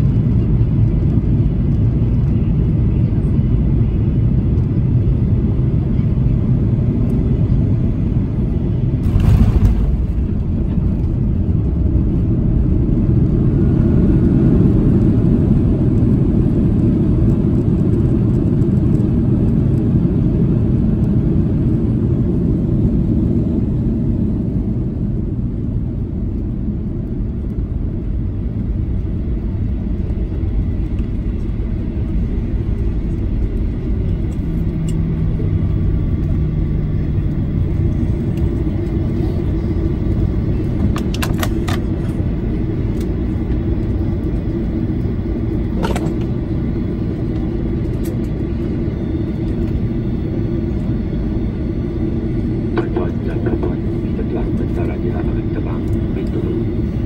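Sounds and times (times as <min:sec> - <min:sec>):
jet rumbling on runway: 0:00.0 - 0:57.0
low steady hum: 0:05.9 - 0:16.7.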